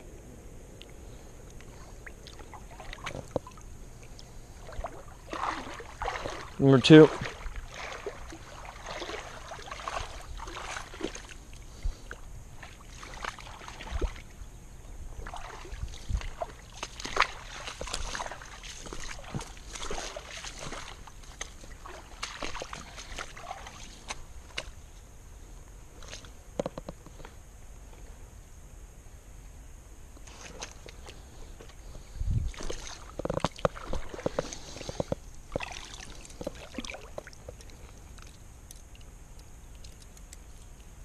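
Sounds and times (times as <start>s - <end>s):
steady low rumble: 0.0s - 41.0s
footsteps on grassy bank: 2.0s - 14.3s, 15.1s - 25.0s, 30.2s - 38.4s
rustles and clicks of handling: 32.6s - 41.0s.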